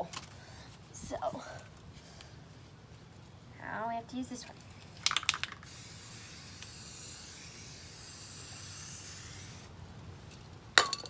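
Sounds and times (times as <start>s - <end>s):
spray can hissing: 5.1s - 9.7s.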